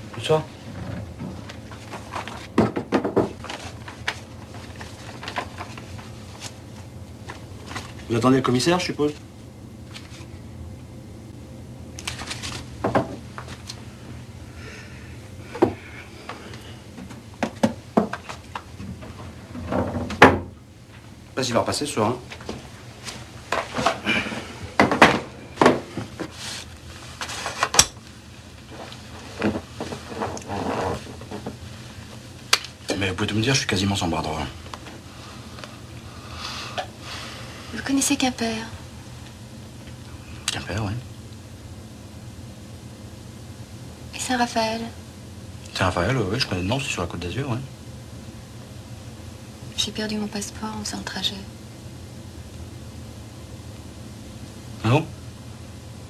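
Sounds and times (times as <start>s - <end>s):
low room hum: 0.0s - 56.0s
chair shifting: 0.2s - 6.6s, 22.3s - 28.0s, 28.6s - 31.7s
clicks and knocks of office things: 0.8s - 6.6s, 16.5s - 20.4s
soft rustles: 26.0s - 27.7s.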